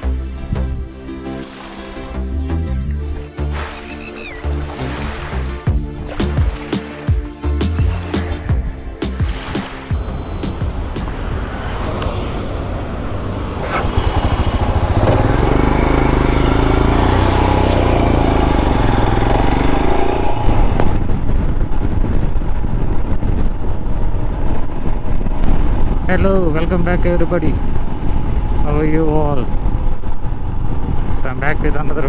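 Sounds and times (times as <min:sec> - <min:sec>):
motorcycle engine running: 0:09.4 - 0:26.0, 0:29.5 - 0:31.2.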